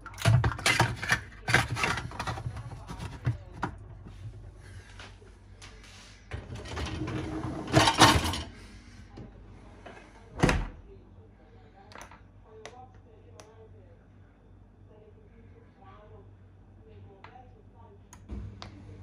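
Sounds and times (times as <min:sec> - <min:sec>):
dishwasher rack rattling scrape: 0:06.3 - 0:08.5.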